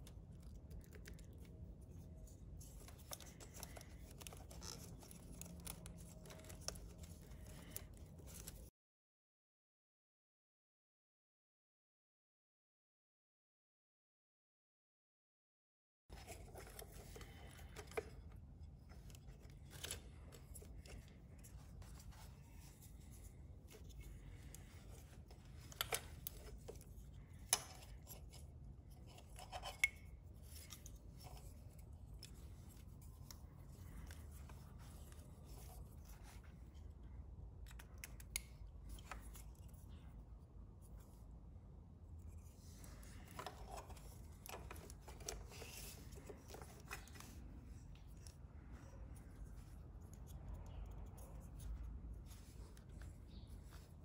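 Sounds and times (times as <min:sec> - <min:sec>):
wires rustling: 0:00.0 - 0:08.7, 0:16.1 - 0:41.5.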